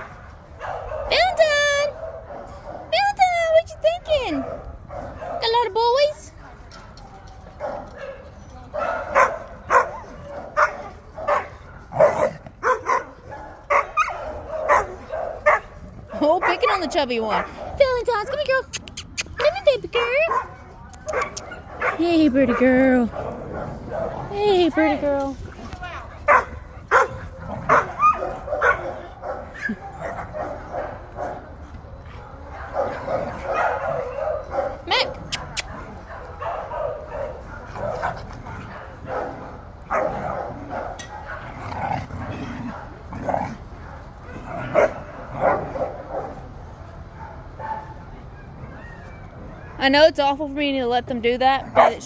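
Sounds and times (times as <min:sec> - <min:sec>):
dogs barking: 0:07.6 - 0:17.9, 0:20.2 - 0:24.3, 0:26.2 - 0:31.5, 0:32.4 - 0:46.4.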